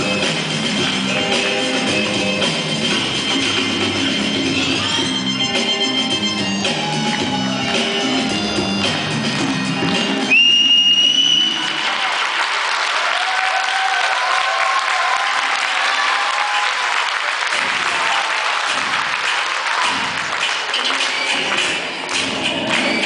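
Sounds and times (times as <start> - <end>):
audience applauding and cheering: 6.7 - 23.0
shrill whistle: 10.2 - 11.7.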